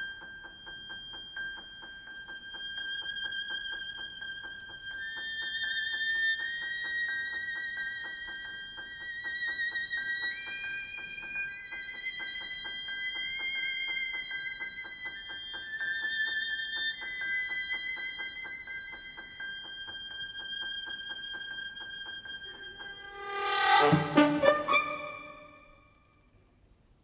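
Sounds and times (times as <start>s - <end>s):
high notes with vibrato: 22.5s - 25.8s
held high note: 22.6s - 25.8s.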